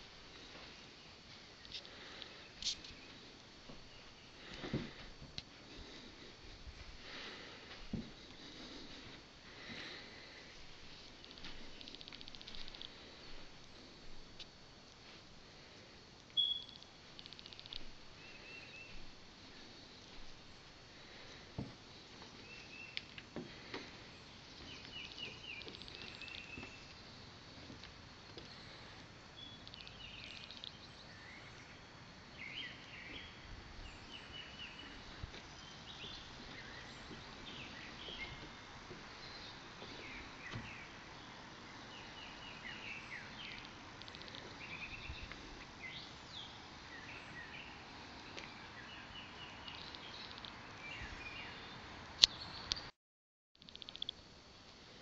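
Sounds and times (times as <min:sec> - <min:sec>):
faint high whine: 0:00.0 - 0:52.6
birds chirping: 0:16.4 - 0:52.9
sharp click: 0:53.6 - 0:54.2.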